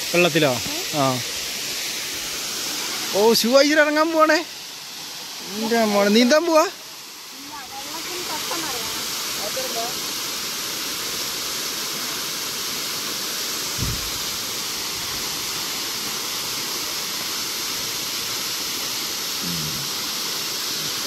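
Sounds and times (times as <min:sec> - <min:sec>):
river water flowing over rock: 0:00.0 - 0:21.0
low thump: 0:13.8 - 0:14.2.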